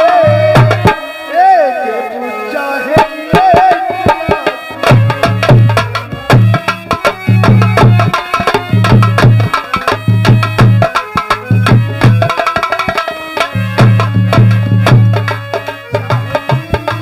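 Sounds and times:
drums beating lively rhythm: 0.0s - 1.6s, 2.8s - 17.0s
sustained melodic notes: 4.6s - 17.0s.

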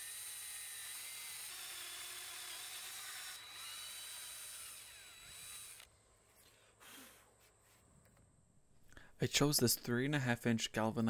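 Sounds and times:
cordless drill boring into wood: 0.0s - 5.9s.

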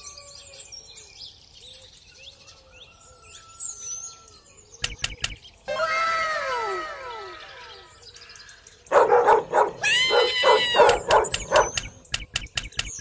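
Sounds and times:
dog barking and yelping: 8.9s - 12.0s.

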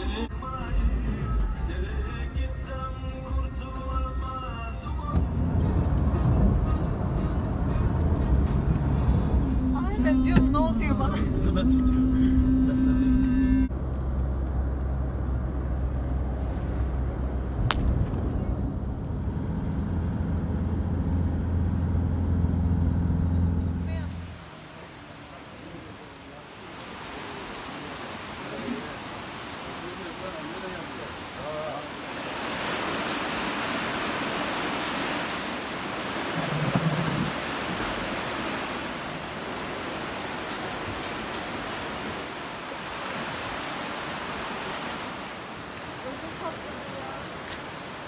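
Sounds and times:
car cabin engine and road drone: 5.0s - 24.6s
river rushing: 22.7s - 48.0s.

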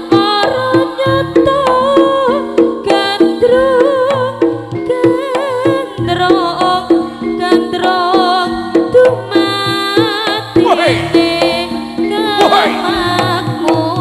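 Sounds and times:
drum strokes: 0.0s - 14.0s
gamelan ensemble music: 0.1s - 14.0s
wavering melodic lead: 10.5s - 14.0s.

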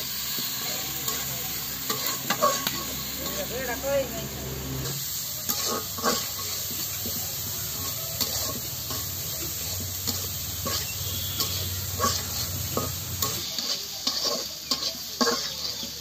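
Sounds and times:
oil sizzling in a wok: 0.0s - 16.0s
spatula scraping pan: 0.4s - 3.8s, 4.4s - 16.0s.

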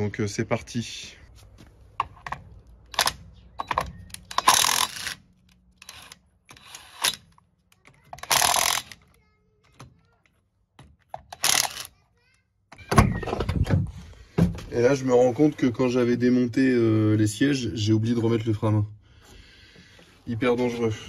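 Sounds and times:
impact wrench rattling: 3.0s - 7.4s, 8.0s - 9.2s, 10.8s - 11.9s.

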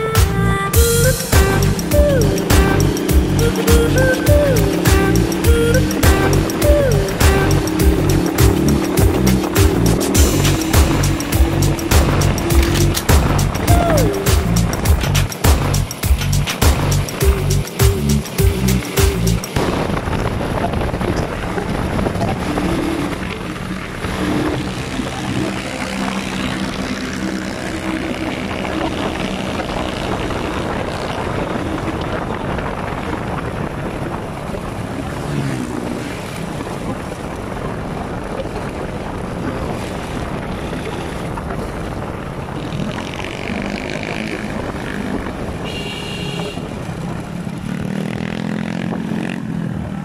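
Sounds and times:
wind rush on microphone: 0.0s - 50.0s
vehicle engine running: 0.4s - 19.6s.

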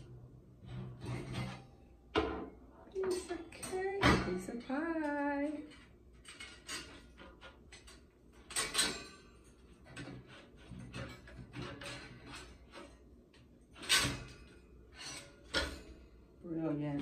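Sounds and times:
metal wire rack clinking: 3.0s - 13.0s, 13.8s - 16.1s.

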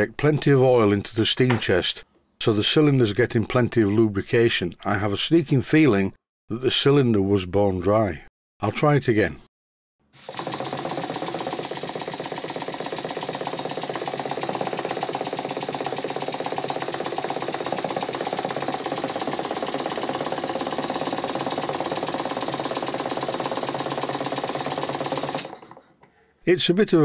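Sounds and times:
model steam engine rattling: 10.3s - 25.8s.

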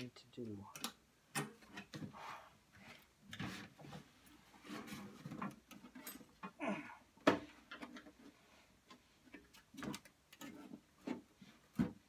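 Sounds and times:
grunts of effort: 6.5s - 7.1s.

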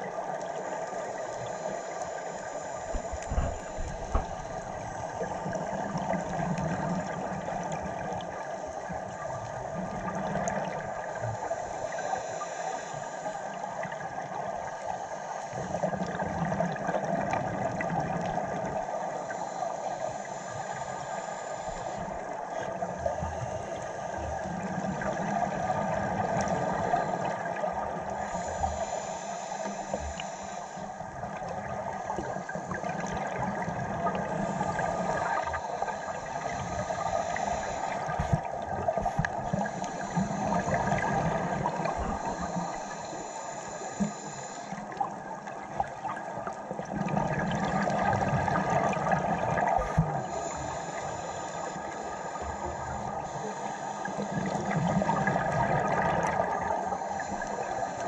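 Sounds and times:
faint hum: 0.0s - 58.0s
underwater hiss: 0.4s - 58.0s
regulator breathing: 0.6s - 7.1s, 11.0s - 13.8s, 18.7s - 45.3s, 48.5s - 58.0s
exhaled bubbles: 31.2s - 43.2s, 43.9s - 53.3s, 54.0s - 58.0s.

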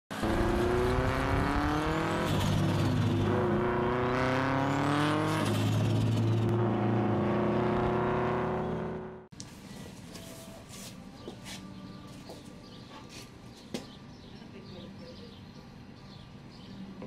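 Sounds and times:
car engine accelerating hard: 0.1s - 9.3s.

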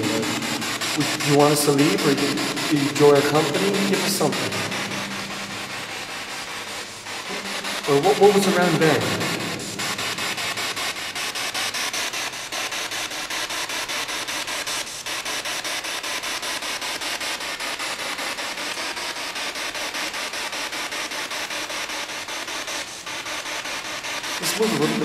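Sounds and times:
pulsing radio static: 0.0s - 12.5s, 24.3s - 25.0s.

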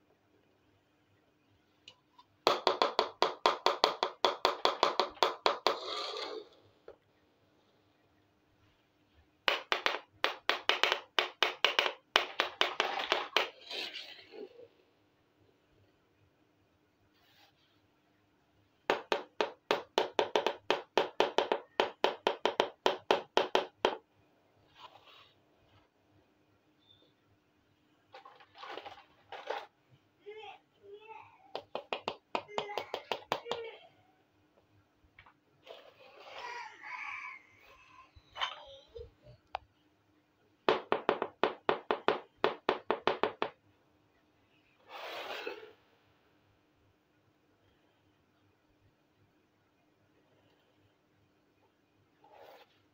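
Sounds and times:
toy scraping along floor: 5.6s - 6.8s, 12.6s - 14.7s, 28.2s - 29.8s, 35.6s - 36.7s, 44.8s - 45.9s
plastic toy pot tapping: 9.5s - 13.5s.

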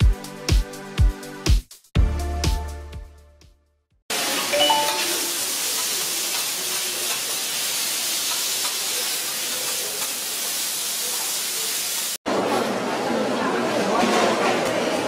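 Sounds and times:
food sizzling on hot griddle: 4.1s - 12.2s.

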